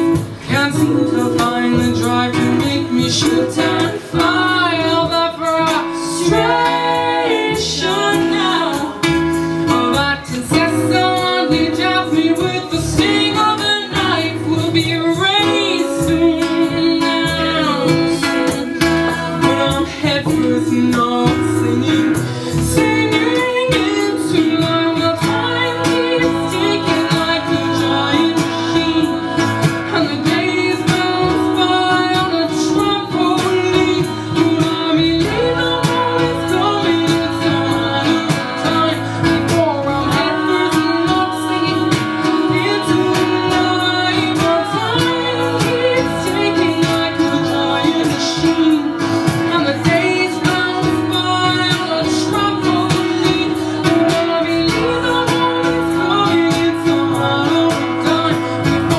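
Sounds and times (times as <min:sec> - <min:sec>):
acoustic guitar: 0:00.0 - 0:58.9
double bass: 0:00.0 - 0:58.9
women singing: 0:00.0 - 0:58.9.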